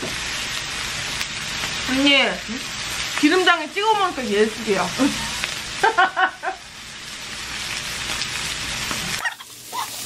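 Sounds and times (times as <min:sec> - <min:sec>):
meat sizzling in a frying pan: 0:00.0 - 0:10.0.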